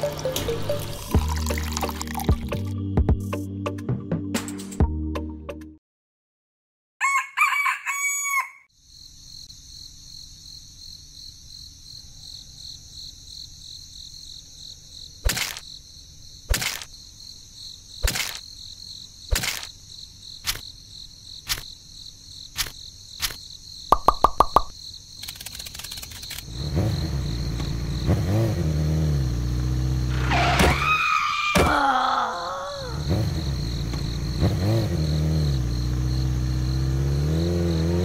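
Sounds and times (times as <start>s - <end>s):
rooster crowing: 7.0s - 8.7s
small clicks: 18.0s - 18.4s, 19.3s - 19.8s, 24.0s - 26.5s
sharp knocks: 23.9s - 24.7s.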